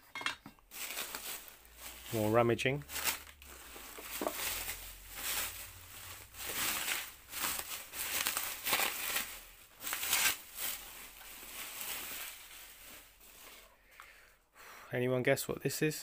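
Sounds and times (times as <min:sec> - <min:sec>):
bubble wrap crinkling and rustling: 0:00.6 - 0:13.8.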